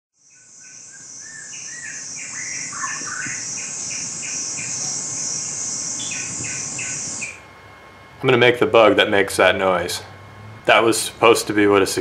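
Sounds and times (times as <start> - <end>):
bird chirping: 0.2 - 7.4
cicada buzzing: 0.2 - 7.6.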